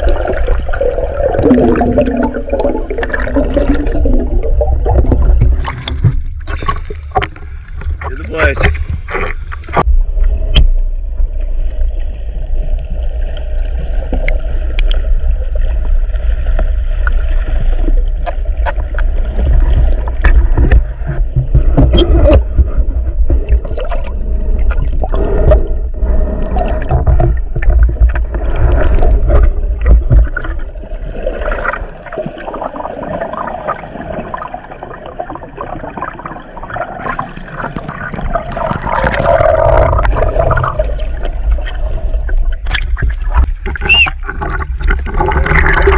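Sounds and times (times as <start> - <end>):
heavy low rumble: 0.0 - 17.2
underwater water rushing: 0.0 - 45.9
sharp clicks and crackles: 14.1 - 15.1.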